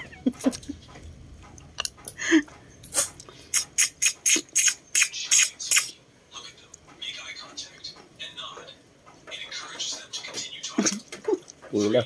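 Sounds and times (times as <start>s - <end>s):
lips slurping snail shells: 2.9s - 6.0s.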